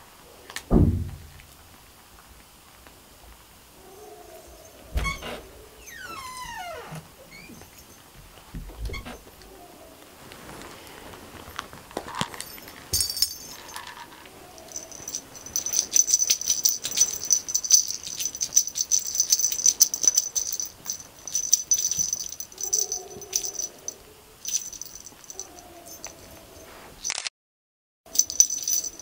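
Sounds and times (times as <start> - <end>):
small bell jingling: 7.4 - 8.2, 12.3 - 26.7, 28.1 - 29.0.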